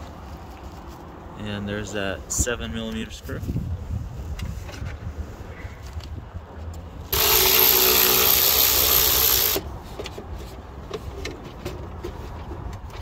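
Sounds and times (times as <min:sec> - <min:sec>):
cordless drill spinning: 0:07.1 - 0:09.7.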